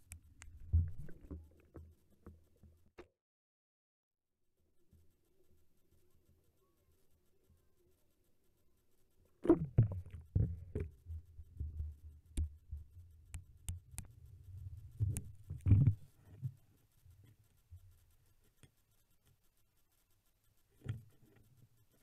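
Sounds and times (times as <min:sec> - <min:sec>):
muffled underwater thumps and rumbling: 0:09.4 - 0:12.9, 0:14.9 - 0:16.1.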